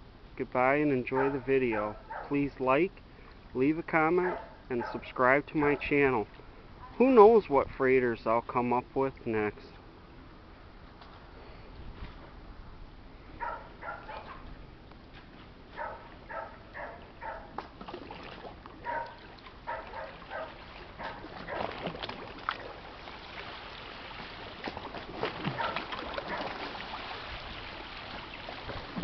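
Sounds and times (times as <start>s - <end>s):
dog barking: 1.2s - 2.3s, 4.2s - 5.1s, 13.4s - 14.4s, 15.8s - 17.5s, 18.8s - 21.7s, 25.6s - 26.5s
water splashing against shore: 15.8s - 29.0s.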